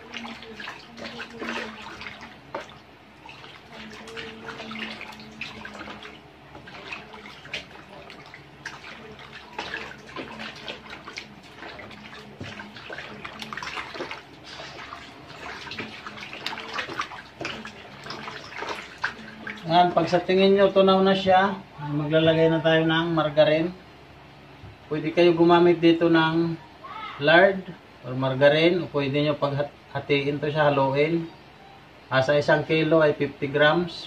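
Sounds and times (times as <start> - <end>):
hand sloshing water in basin: 0.0 - 21.2.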